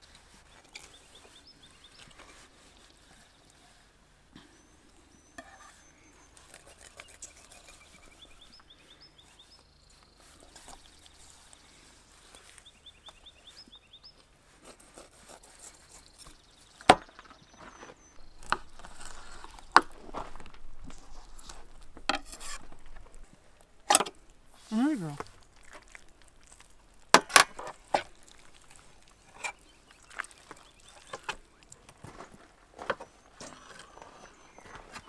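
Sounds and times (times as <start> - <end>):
faint bird chirping: 0.3 - 14.3, 15.0 - 23.8, 28.3 - 31.9, 33.0 - 35.0
knife slicing and scraping fish: 6.4 - 8.4, 14.6 - 16.4, 18.2 - 23.3.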